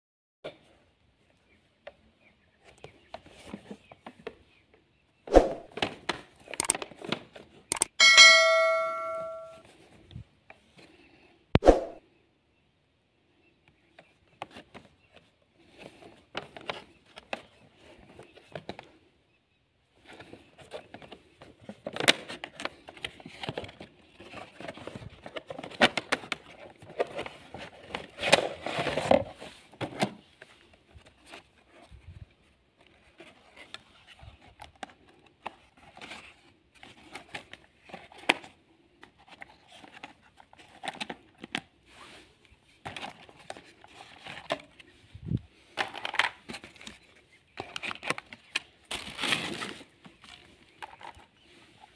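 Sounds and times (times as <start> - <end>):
cardboard and plastic packaging rustling: 14.3 - 19.0, 20.0 - 51.9.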